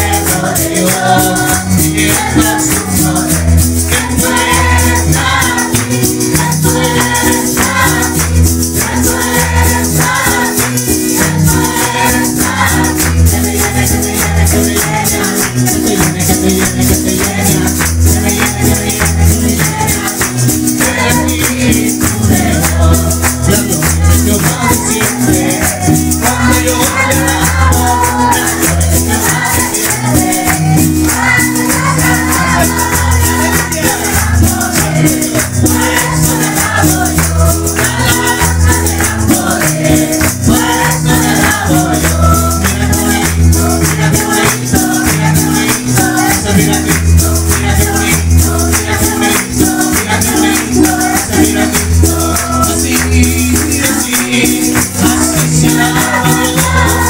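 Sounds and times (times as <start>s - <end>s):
acoustic guitar: 0.0s - 57.0s
congregation singing: 0.0s - 57.0s
electronic keyboard: 0.0s - 57.0s
hand clapping: 0.0s - 57.0s
plastic shaker rattling: 0.0s - 57.0s.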